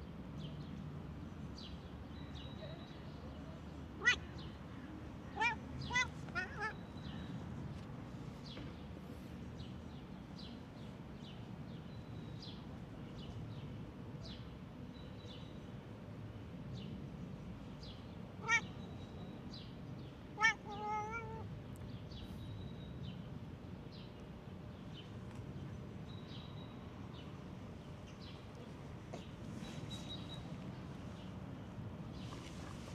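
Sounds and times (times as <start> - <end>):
cat meowing: 4.0 - 4.3, 5.3 - 6.9, 18.4 - 18.7, 20.4 - 21.5.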